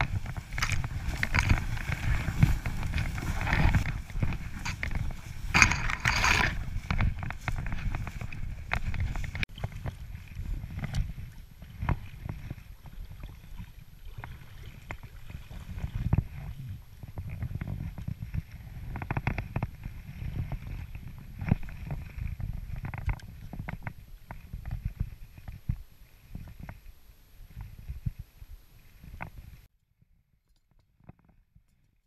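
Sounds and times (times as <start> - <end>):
low rumbling handling noise: 0.0 - 12.6
water sloshing: 0.0 - 18.4.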